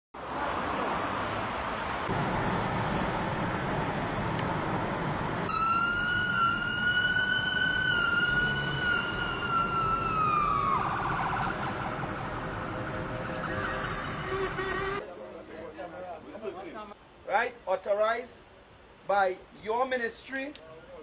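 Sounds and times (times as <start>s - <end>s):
car road and wind noise: 0.2s - 15.0s
police siren wailing and yelping: 5.5s - 15.0s.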